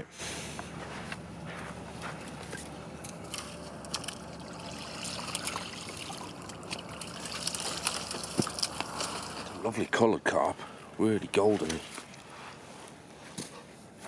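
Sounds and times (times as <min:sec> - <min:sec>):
water sloshing: 0:01.3 - 0:09.9, 0:11.3 - 0:12.4
water dripping and splashing: 0:03.1 - 0:09.6.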